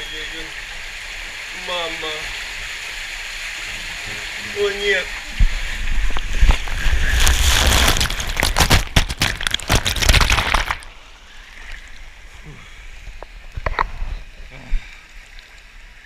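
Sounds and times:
loud water splashing: 0.0 - 12.0
steady rush of water: 0.0 - 16.0.

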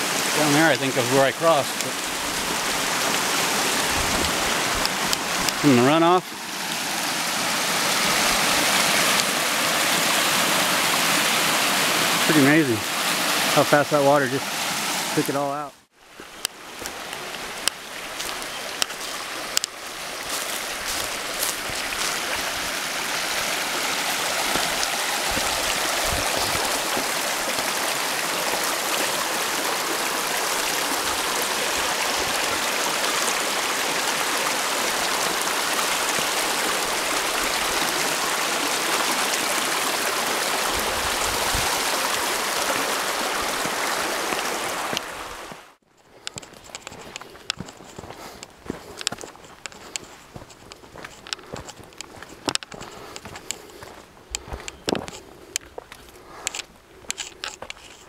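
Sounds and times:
water rushing over rocks: 0.0 - 45.8.

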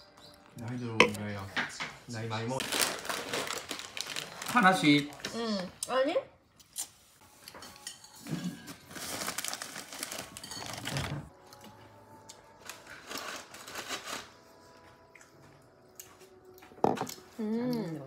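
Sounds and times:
food and utensils rustling: 6.5 - 17.4.

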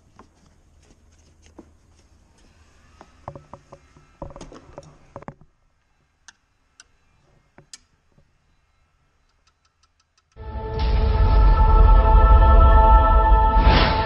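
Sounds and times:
music: 10.4 - 14.0.

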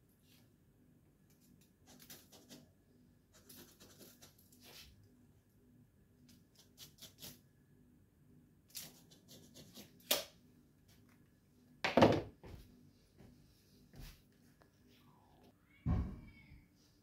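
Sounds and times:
objects knocking on wooden bench: 11.8 - 12.6.

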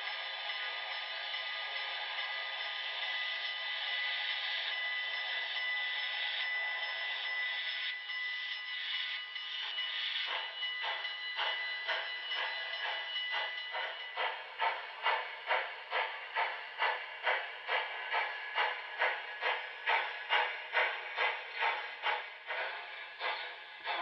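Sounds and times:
model steam exhaust chuffs: 9.5 - 24.0.

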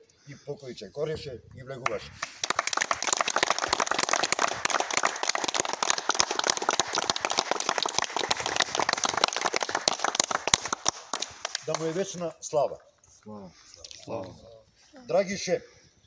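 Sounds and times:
group of people applauding: 2.2 - 12.1.

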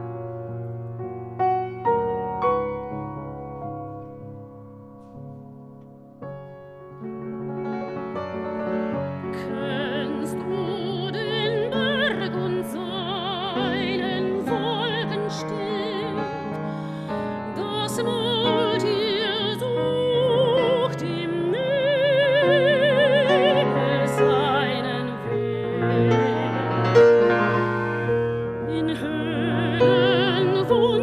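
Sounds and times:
grand piano: 0.0 - 31.0
soprano singing with vibrato: 9.4 - 27.0, 28.6 - 31.0.

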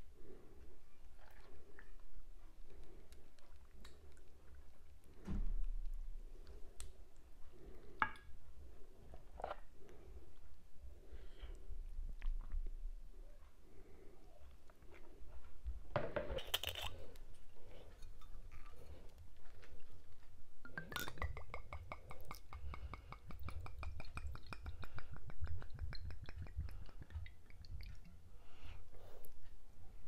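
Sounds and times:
wine glugging into glass: 20.6 - 21.5.

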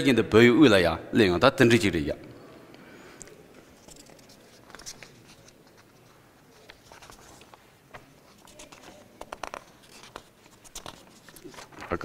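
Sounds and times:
paper rustling: 3.7 - 12.0.

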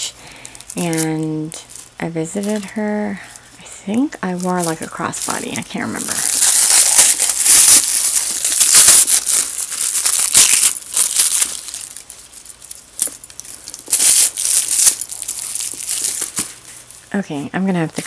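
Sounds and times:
paper crinkling and tearing: 4.3 - 13.1, 13.9 - 16.9.

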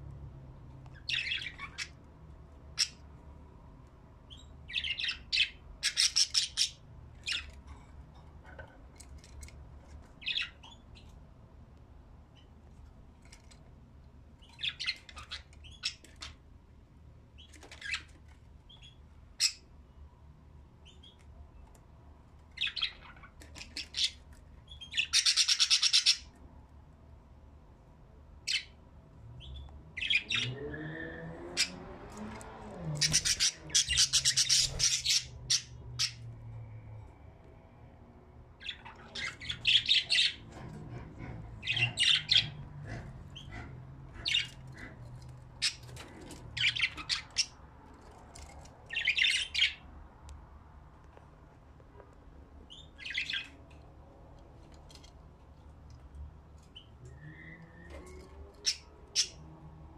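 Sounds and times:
budgerigars chirping and chattering: 1.0 - 2.0, 4.3 - 7.6, 10.2 - 11.1, 14.4 - 16.3, 22.6 - 26.3, 29.5 - 30.6, 33.0 - 36.2, 38.6 - 47.6, 48.9 - 49.8, 52.7 - 53.6.

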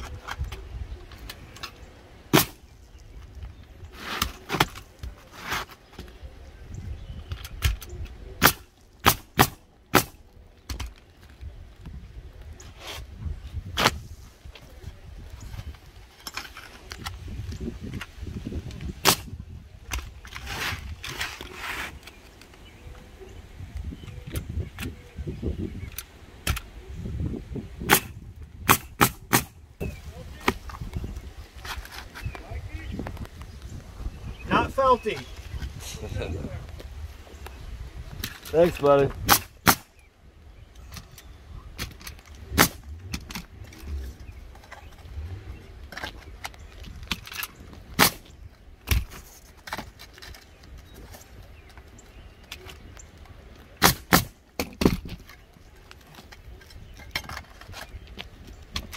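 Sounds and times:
nail gun firing: 27.9 - 29.5, 53.8 - 54.4.

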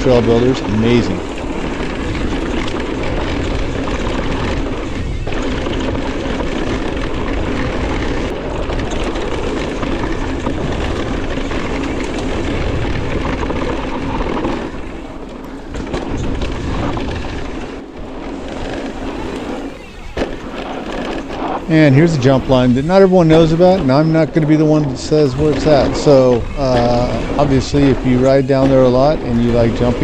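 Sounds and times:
bike tyres on dirt: 0.0 - 30.0
wind rushing over microphone: 0.0 - 30.0.

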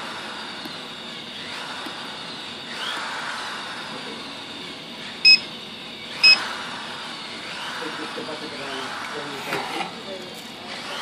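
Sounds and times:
short electronic beeps: 5.2 - 5.4.

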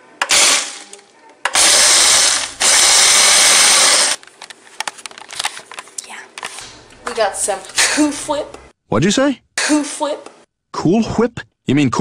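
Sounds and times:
blender crushing ice: 0.2 - 0.9, 1.5 - 4.2.

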